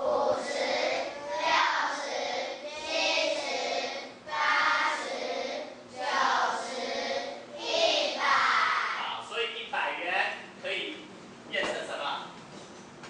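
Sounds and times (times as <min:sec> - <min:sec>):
children singing in unison: 0:00.0 - 0:09.0.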